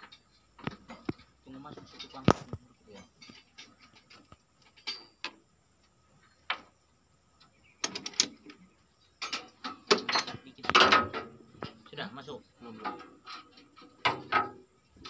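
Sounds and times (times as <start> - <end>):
metal tools clanking: 0.0 - 5.4, 9.0 - 14.6.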